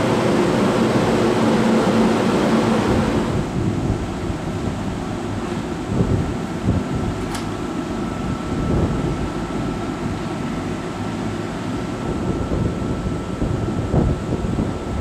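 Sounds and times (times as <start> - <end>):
train equipment humming: 0.0 - 15.0
brief click: 7.2 - 7.5.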